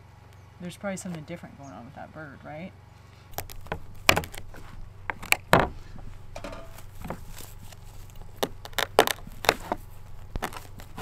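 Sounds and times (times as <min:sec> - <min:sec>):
feathers being ripped from skin: 0:03.3 - 0:05.4.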